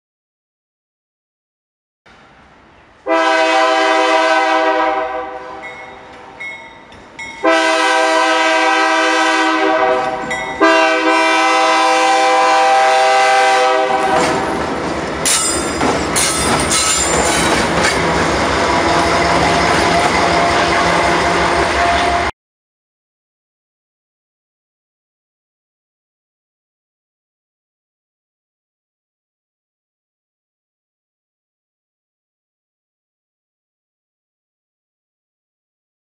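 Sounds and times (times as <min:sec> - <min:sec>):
locomotive air horn blasts: 0:03.1 - 0:05.8, 0:07.4 - 0:14.5, 0:20.2 - 0:22.3
locomotive engine rumbling: 0:04.8 - 0:22.3
train wheels clattering on rails: 0:13.9 - 0:22.2.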